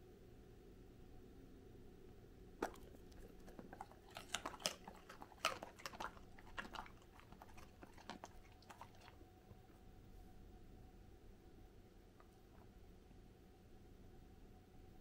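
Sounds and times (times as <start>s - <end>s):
dog crunching carrot: 2.6s - 9.3s.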